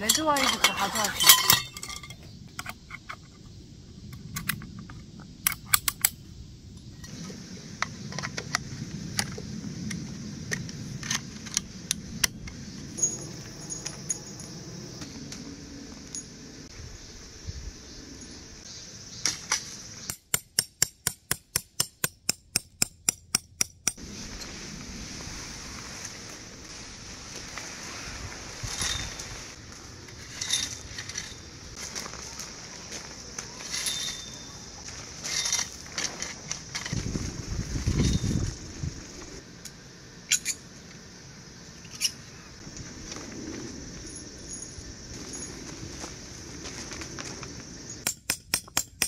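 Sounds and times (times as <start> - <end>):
metal camping gear clinking: 0.0 - 3.3, 12.9 - 14.6, 30.1 - 32.1, 33.5 - 37.0.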